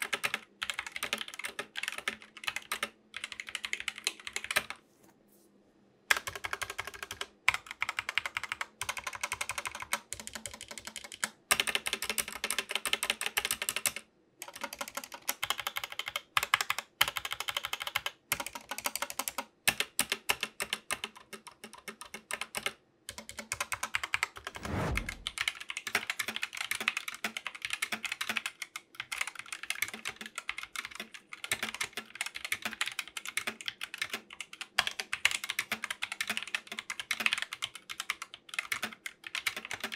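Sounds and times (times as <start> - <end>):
mechanical keyboard typing: 0.0 - 4.8, 6.1 - 24.5, 25.3 - 39.9
low falling whoosh: 24.6 - 25.4.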